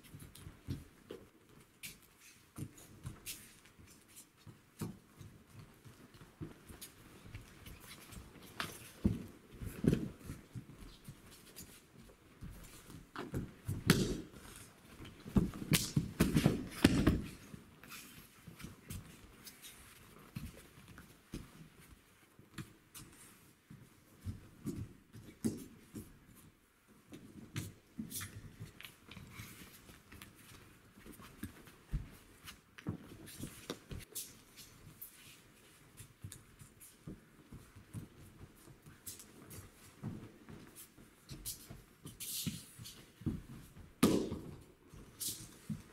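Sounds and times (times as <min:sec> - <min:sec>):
feet stepping on mats: 0:00.0 - 0:45.9
uniforms rustling: 0:00.0 - 0:45.9
bodies thudding on mats: 0:12.8 - 0:17.5, 0:43.3 - 0:44.7.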